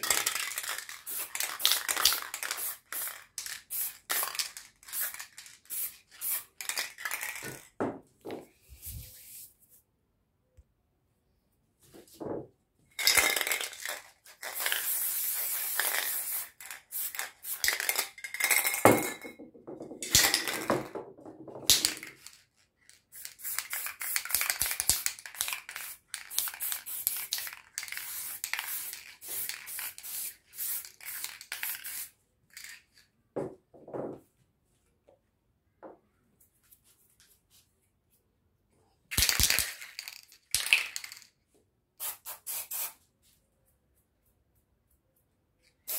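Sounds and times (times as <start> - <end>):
spray paint cans hissing: 0.0 - 7.7, 13.0 - 18.8, 23.0 - 32.8, 39.1 - 41.3, 42.0 - 43.0.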